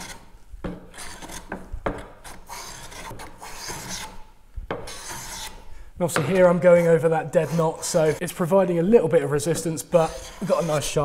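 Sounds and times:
hand plane rasping on wood: 2.3 - 4.2, 4.9 - 5.6, 6.6 - 8.2, 10.0 - 11.0.

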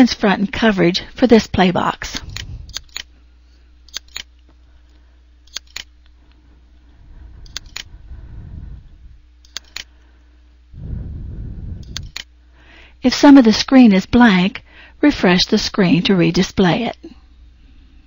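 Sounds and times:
steady low hum: 0.0 - 18.0
computer mouse clicking: 2.1 - 3.1, 3.9 - 4.3, 5.5 - 5.9, 7.4 - 7.9, 9.4 - 9.9, 11.8 - 12.3.

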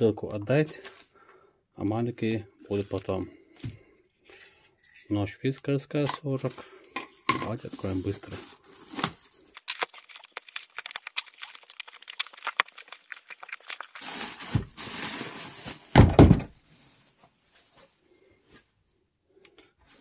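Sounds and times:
tape ripping: 8.7 - 16.0
box thumping: 15.9 - 16.6.

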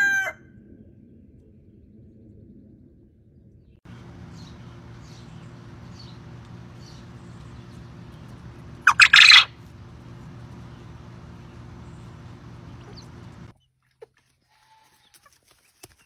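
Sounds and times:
faint high chirps: 3.9 - 13.5
low hum: 3.9 - 13.5
quail crowing: 3.9 - 13.5.

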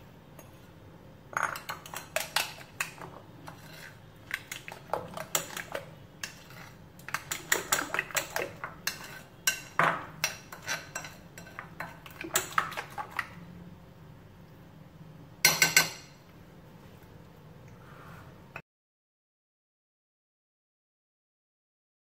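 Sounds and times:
metal spoon clinking in glass bowl: 1.3 - 2.6.

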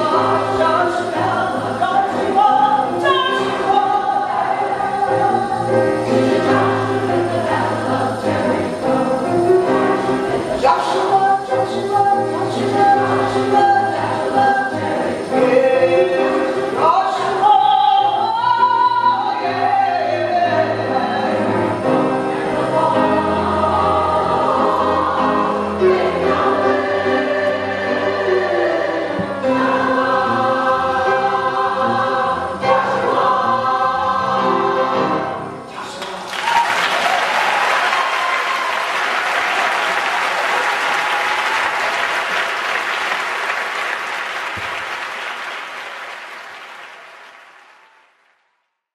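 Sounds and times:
piano accompaniment: 0.0 - 36.0
women's chorus singing gospel: 0.0 - 36.0
audience applause: 35.9 - 48.6.

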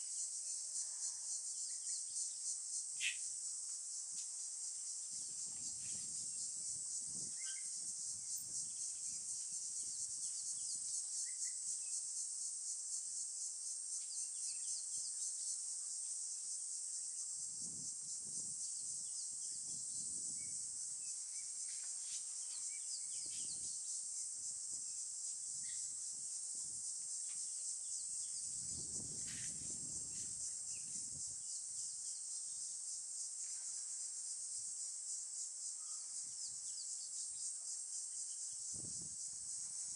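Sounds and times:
insects chorus: 0.0 - 39.9
faint bird chirps: 3.0 - 3.2, 7.3 - 7.8, 35.8 - 36.9.

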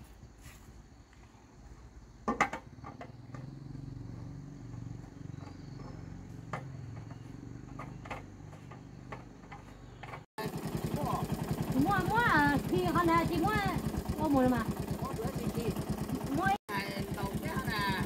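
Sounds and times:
small engine running: 2.8 - 7.9, 10.3 - 18.0.

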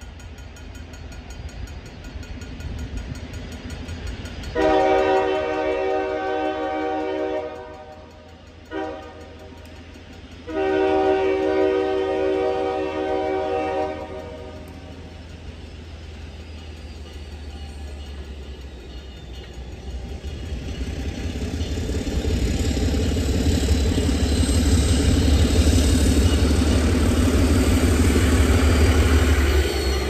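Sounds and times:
low rumble of train: 0.0 - 30.0
locomotive horn blasts: 4.6 - 8.0, 8.7 - 9.5, 10.5 - 14.6.

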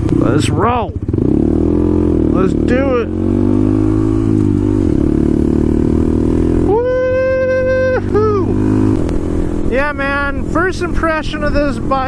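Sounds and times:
person shouting woo: 6.6 - 8.6.

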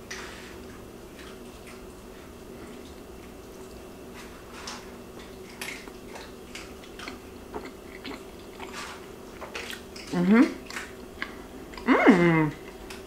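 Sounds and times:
faint steady hum: 0.0 - 13.0
close-miked chewing: 4.7 - 13.0.

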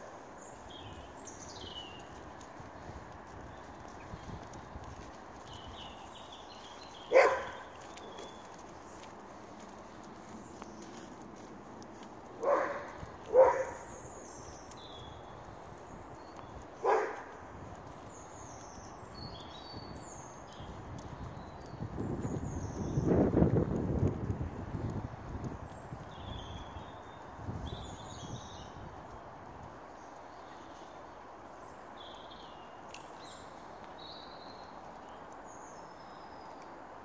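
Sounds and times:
small birds chirping: 0.0 - 37.0
dog barking: 7.1 - 7.6, 12.4 - 13.9, 16.8 - 17.3.

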